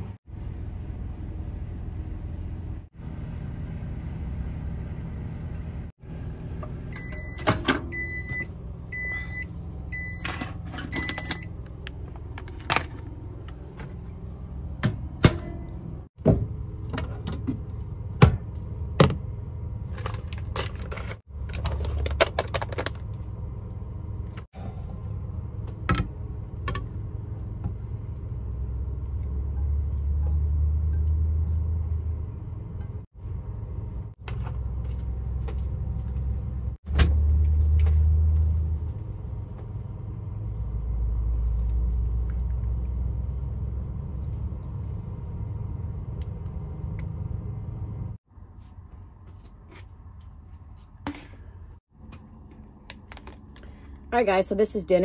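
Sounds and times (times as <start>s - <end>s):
microwave keypad beeps: 7.0s - 11.5s.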